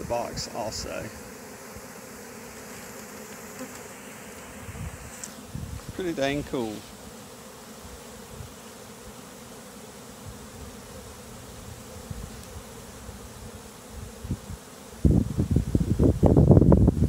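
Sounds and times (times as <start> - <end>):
bee swarm buzzing: 0.0 - 17.0
wind rumble on microphone: 4.6 - 6.0, 12.0 - 17.0.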